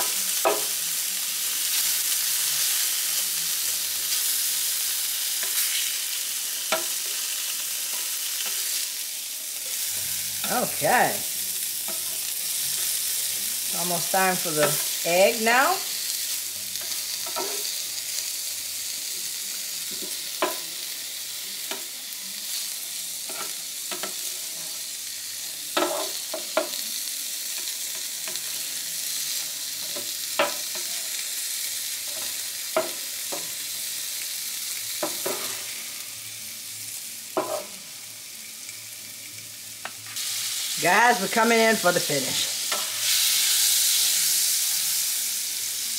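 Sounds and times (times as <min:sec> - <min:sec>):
food sizzling on a griddle: 0:00.0 - 0:45.9
spatula scraping and tapping griddle: 0:16.8 - 0:17.7, 0:23.3 - 0:24.3, 0:25.8 - 0:26.8, 0:37.4 - 0:37.8.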